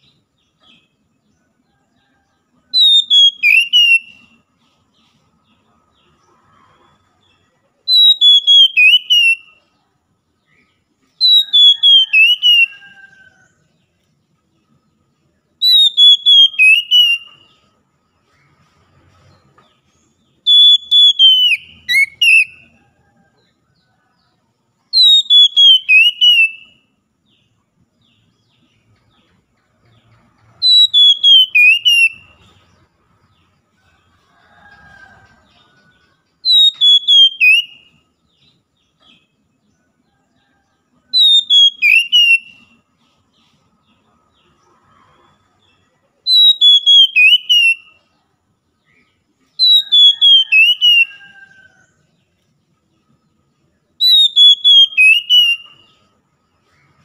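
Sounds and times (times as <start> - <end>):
bird singing whistled notes: 2.7 - 4.5, 7.9 - 9.8, 10.5 - 13.6, 15.6 - 17.8, 20.3 - 22.8, 24.8 - 27.0, 30.4 - 32.7, 35.8 - 39.4, 41.1 - 42.9, 46.3 - 48.1, 48.9 - 51.7, 53.9 - 56.2.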